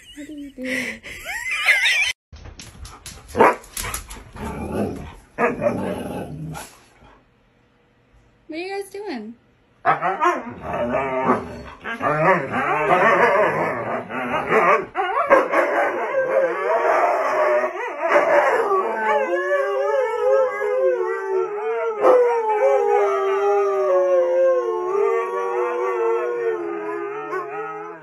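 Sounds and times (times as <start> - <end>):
dogs yipping and yowling: 1.3 - 2.2, 9.8 - 28.0
dogs howling: 9.8 - 28.0.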